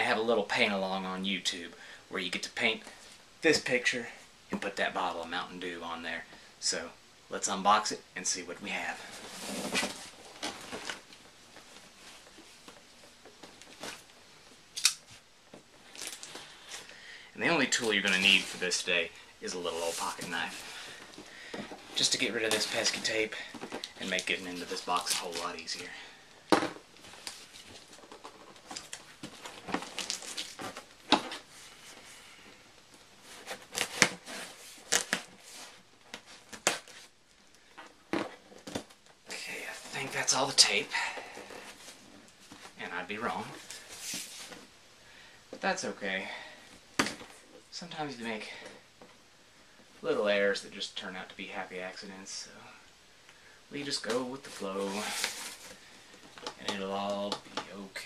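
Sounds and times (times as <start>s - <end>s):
tape tearing: 14.8s - 15.2s, 23.7s - 25.8s, 28.6s - 31.4s, 33.3s - 35.7s.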